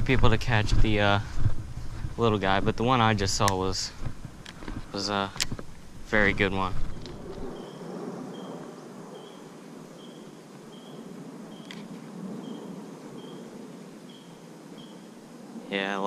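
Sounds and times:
outdoor background noise: 0.0s - 16.0s
faint high chirp: 6.9s - 11.8s, 12.4s - 13.5s, 14.1s - 15.1s.

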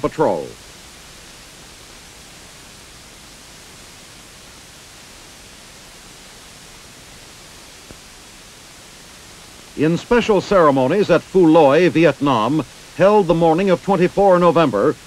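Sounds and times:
old film soundtrack hiss: 0.0s - 15.0s.

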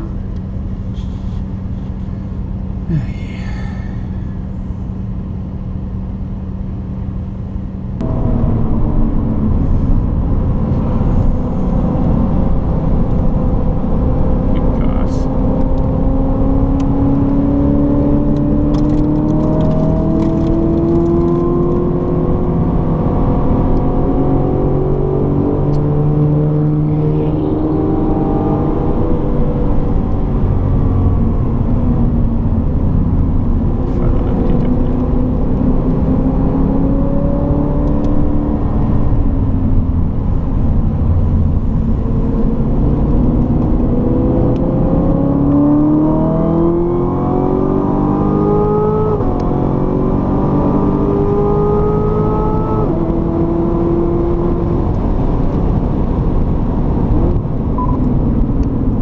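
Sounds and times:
car engine under load: 0.0s - 59.0s.

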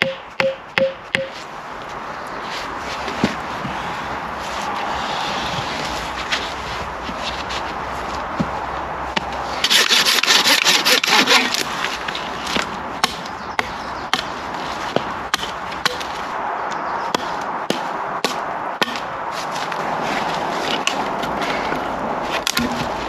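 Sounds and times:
hatchet chopping branches: 0.0s - 1.4s, 8.4s - 19.8s, 20.7s - 21.7s, 22.3s - 23.0s
pull-saw cutting wood: 9.5s - 13.2s.

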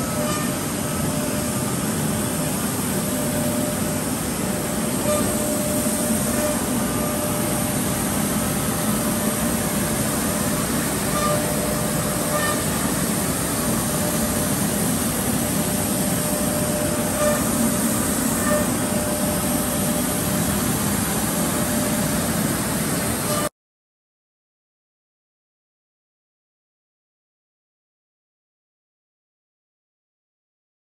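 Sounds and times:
machinery rumble and hiss: 0.0s - 23.5s.

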